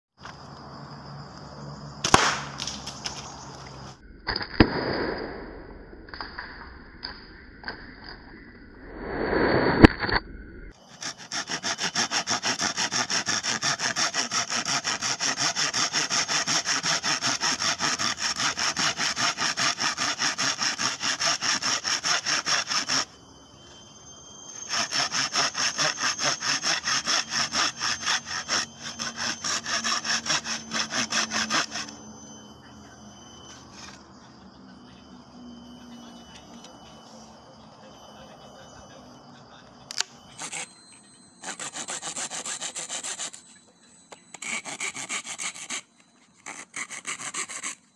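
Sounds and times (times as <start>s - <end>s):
sharp cracks and knocks: 2.0s - 3.3s
hand saw cutting bamboo: 10.8s - 23.1s, 24.5s - 32.4s, 39.9s - 40.7s, 41.4s - 43.4s, 44.3s - 47.9s.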